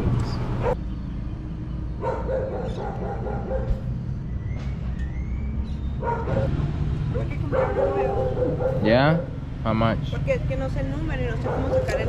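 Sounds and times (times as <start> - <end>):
steady low rumble: 0.0 - 12.0
dogs whining and yipping: 2.0 - 6.5.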